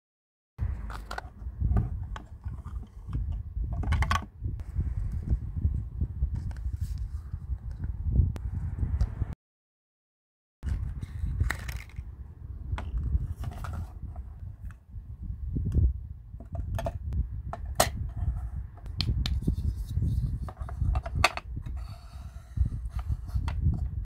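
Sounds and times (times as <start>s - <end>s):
steady low rumble: 10.6s - 24.0s.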